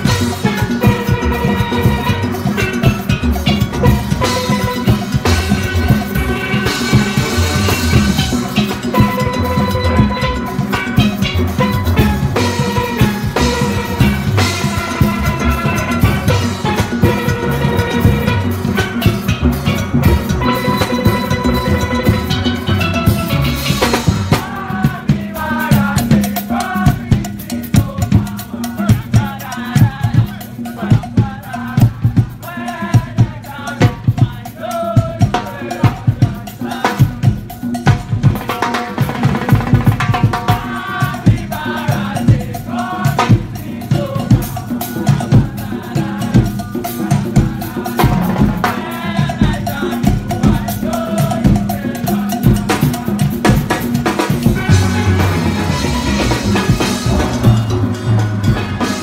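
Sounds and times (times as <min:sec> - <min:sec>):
steelpans playing melody: 0:00.0 - 0:24.7, 0:54.0 - 0:59.0
drum kit beat: 0:00.0 - 0:59.0.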